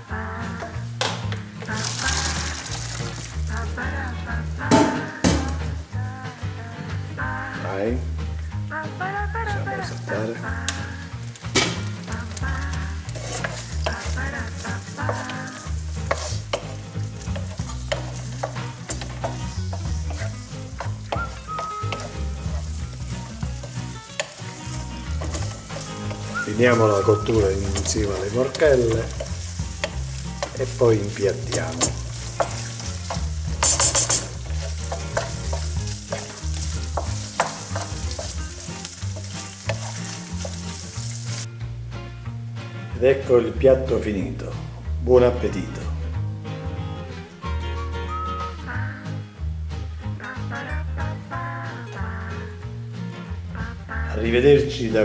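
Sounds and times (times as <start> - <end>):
food sizzling in frying pan: 0.0 - 42.4
utensil clicking against pan: 11.4 - 26.8, 27.6 - 41.5
spoon knocking against pan: 31.6 - 40.6.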